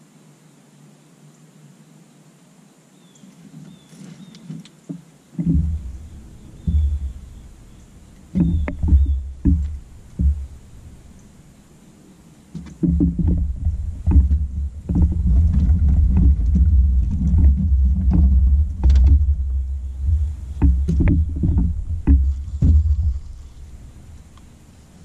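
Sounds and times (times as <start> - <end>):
knocks and clunks on boat: 4.5 - 11.7, 12.5 - 24.7
wind buffeting microphone: 5.4 - 25.0.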